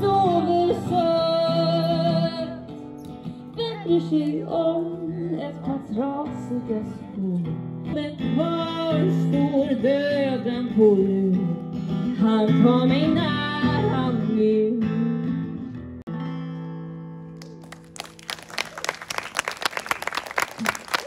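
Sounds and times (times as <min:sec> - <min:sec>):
woman singing: 0:00.0 - 0:15.5
acoustic guitar strumming: 0:07.1 - 0:17.4.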